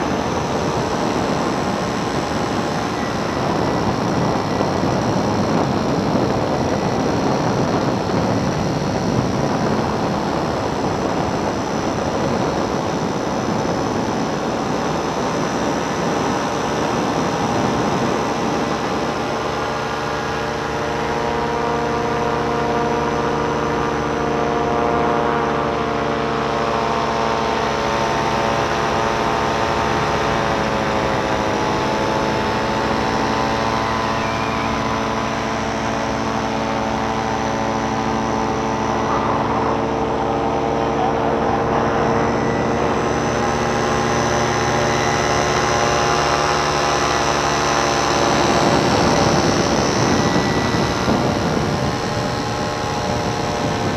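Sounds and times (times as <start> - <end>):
paramotor engine and propeller droning: 0.0 - 53.9.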